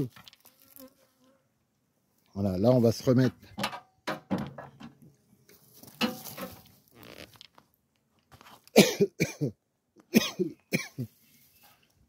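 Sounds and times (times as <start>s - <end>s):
man coughing: 8.8s - 11.1s.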